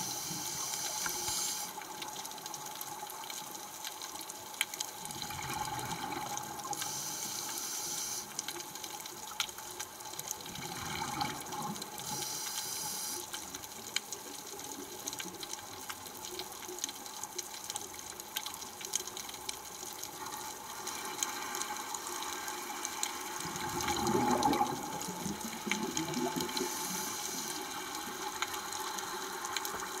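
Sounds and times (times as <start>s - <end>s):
underwater watery hiss: 0.0s - 2.0s, 5.5s - 8.7s, 10.6s - 13.7s, 20.8s - 30.0s.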